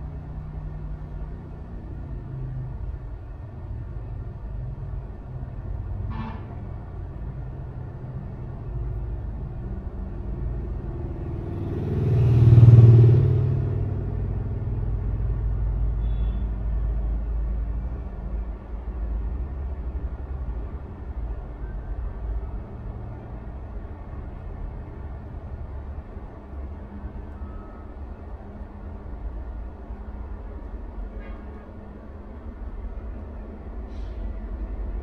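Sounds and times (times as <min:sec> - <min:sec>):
low rumble of passing traffic: 0:00.0 - 0:35.0
vehicle passing by: 0:06.8 - 0:16.0.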